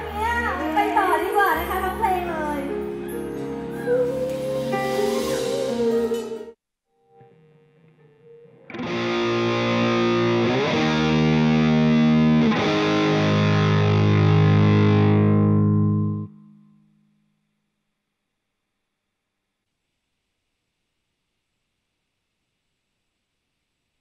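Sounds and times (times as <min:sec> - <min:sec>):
distorted electric guitar chord: 0:07.0 - 0:16.9.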